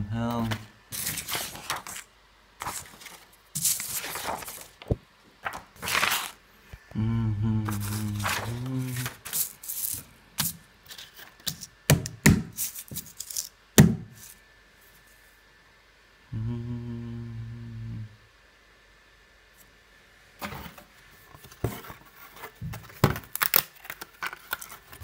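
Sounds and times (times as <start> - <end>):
paper rustling: 0.3 - 6.4, 7.7 - 11.7, 20.4 - 25.0
low voice humming: 6.7 - 9.2, 16.3 - 18.3.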